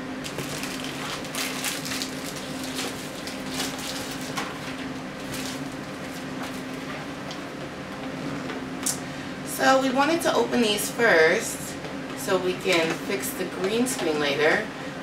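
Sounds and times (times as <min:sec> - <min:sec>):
plastic bag crinkling: 0:00.2 - 0:06.9.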